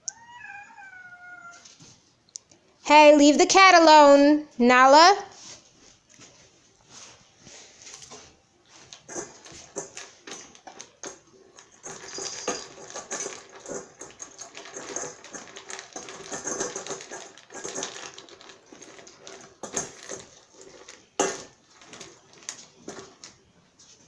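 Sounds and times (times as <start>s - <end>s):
kibble rattling in metal bowl: 8.9s - 23.4s
puppy crunching kibble: 11.6s - 23.4s.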